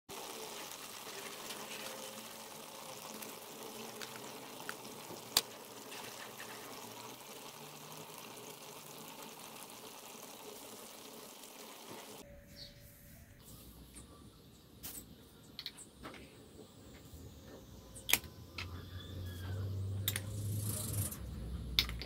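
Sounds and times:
thick sauce bubbling in a skillet: 0:00.1 - 0:12.2.

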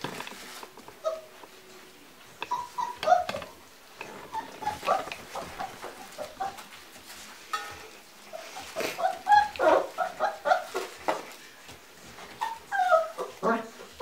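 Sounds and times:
puppy whining: 0:00.9 - 0:07.3, 0:08.3 - 0:14.0
puppies yipping: 0:01.0 - 0:01.4, 0:02.4 - 0:07.2, 0:08.3 - 0:14.0.

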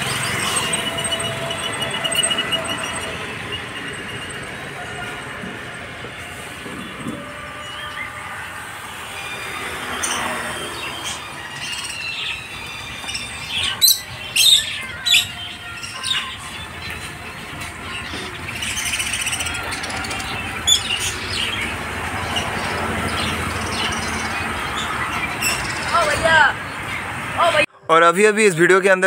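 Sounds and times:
shrill bird squawks: 0:00.0 - 0:05.2, 0:09.0 - 0:16.7
budgerigars chattering and chirping: 0:09.9 - 0:27.2.

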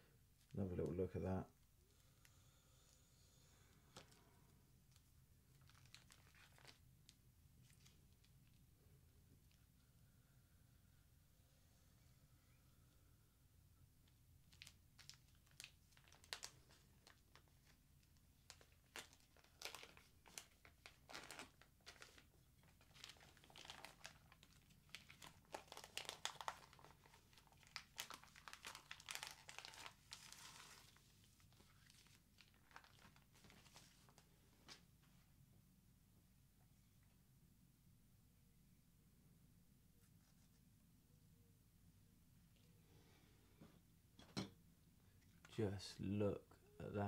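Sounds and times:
plastic film crinkling and tearing: 0:05.5 - 0:08.2, 0:14.4 - 0:34.2.

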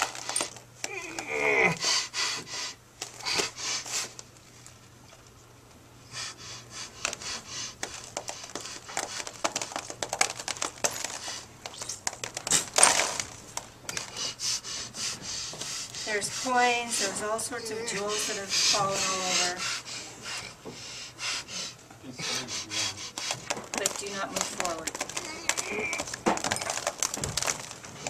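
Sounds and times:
coins clattering onto cloth: 0:09.0 - 0:13.3.

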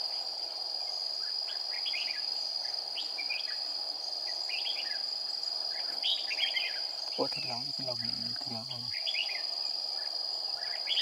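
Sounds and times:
high-pitched insect drone: 0:00.0 - 0:11.0
birds chirping: 0:04.3 - 0:11.0.

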